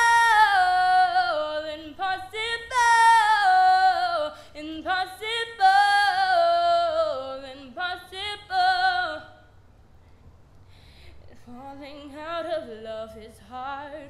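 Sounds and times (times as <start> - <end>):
woman singing a cappella: 0.0 - 9.5, 11.3 - 14.0
singer breathing: 4.3 - 4.6, 10.0 - 11.3.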